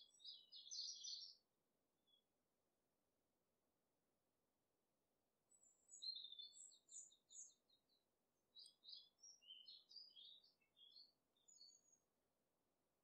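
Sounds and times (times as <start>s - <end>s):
songbird chirping and trilling: 0.0s - 1.4s, 5.5s - 12.1s.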